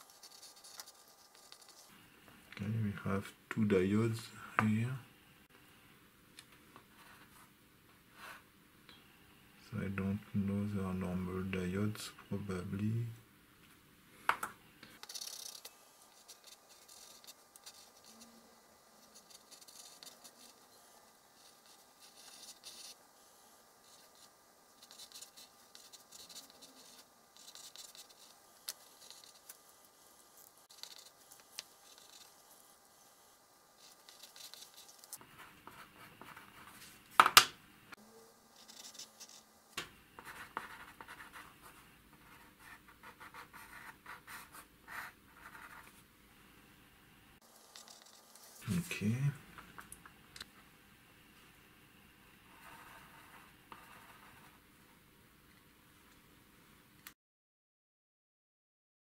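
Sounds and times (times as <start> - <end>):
pencil scratching on paper: 0.0 - 1.9, 15.0 - 23.0, 23.8 - 29.7, 30.3 - 32.7, 33.8 - 36.9, 38.6 - 39.5, 40.2 - 46.0, 47.5 - 48.6, 52.5 - 54.6.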